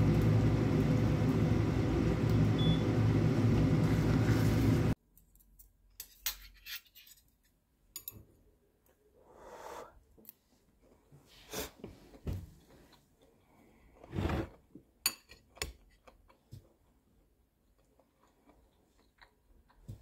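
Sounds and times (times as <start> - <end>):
mechanical whirr with low hum: 0.0 - 5.0.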